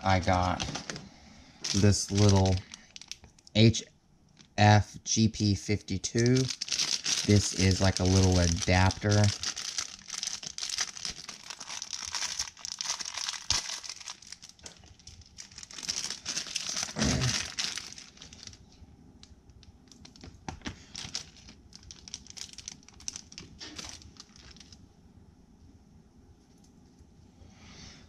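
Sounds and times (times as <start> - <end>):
plastic bag crinkling: 0.0 - 3.5, 6.2 - 18.6, 19.8 - 24.8.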